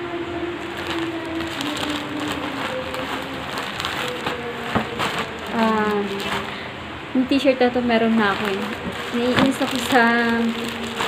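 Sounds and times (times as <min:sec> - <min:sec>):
electric fan whirring: 0:00.0 - 0:11.0
faint music: 0:00.0 - 0:11.0
plastic pouch crinkling: 0:00.6 - 0:06.7, 0:08.0 - 0:11.0.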